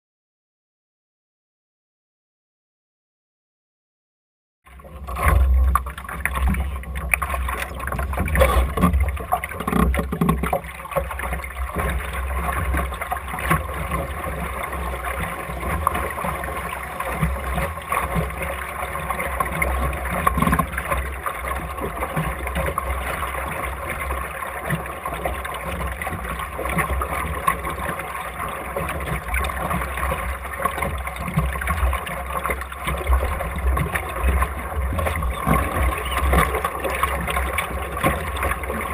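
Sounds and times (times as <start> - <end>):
water rushing along boat hull: 4.7 - 38.9.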